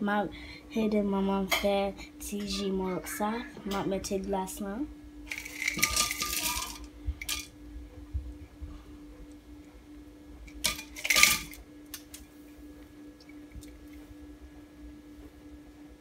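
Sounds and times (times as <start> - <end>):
ice cubes clattering in glass: 5.3 - 7.5, 10.6 - 11.6.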